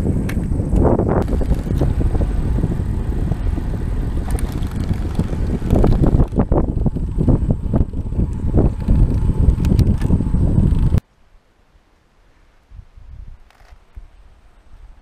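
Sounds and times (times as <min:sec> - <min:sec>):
tyre road rumble: 0:00.0 - 0:11.0
wind buffeting microphone: 0:00.0 - 0:11.0, 0:12.7 - 0:15.0.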